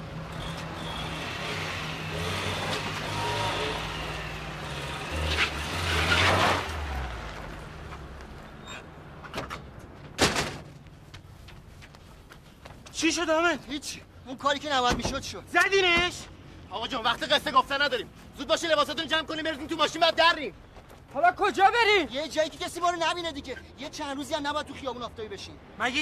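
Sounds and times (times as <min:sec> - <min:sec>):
small car engine running: 0:00.0 - 0:07.4
metal gate banging shut: 0:08.7 - 0:10.7.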